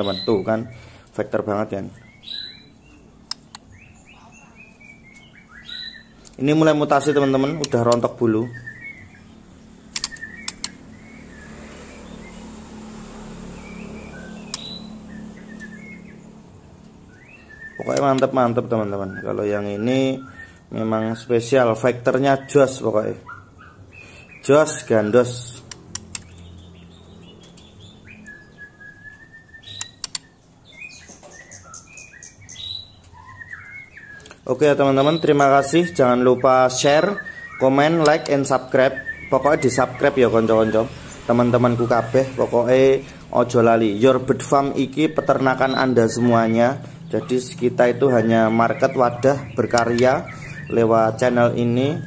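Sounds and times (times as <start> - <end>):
young bird chirping: 0.0 - 1.0, 1.8 - 12.5, 13.4 - 21.5, 22.3 - 52.0
sharp clicks: 3.2 - 3.7, 7.5 - 8.1, 9.9 - 10.8, 14.5 - 14.8, 17.8 - 18.3, 25.6 - 26.5, 29.6 - 30.4, 38.0 - 38.5, 49.6 - 50.6.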